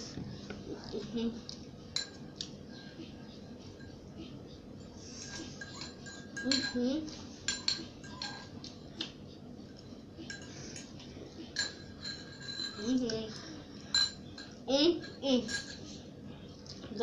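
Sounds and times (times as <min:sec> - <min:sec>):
spoon clinking against bowl: 0:01.9 - 0:02.3, 0:04.8 - 0:08.8, 0:10.2 - 0:10.9, 0:11.5 - 0:13.2, 0:13.8 - 0:15.9.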